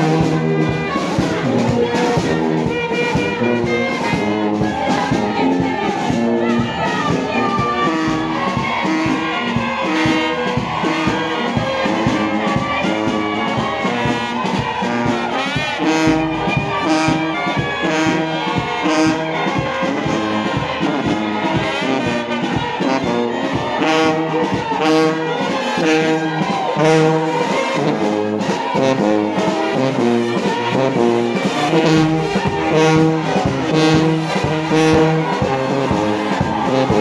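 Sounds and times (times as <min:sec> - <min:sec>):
brass band playing: 0:00.0 - 0:37.0
steady drum beat: 0:00.0 - 0:37.0.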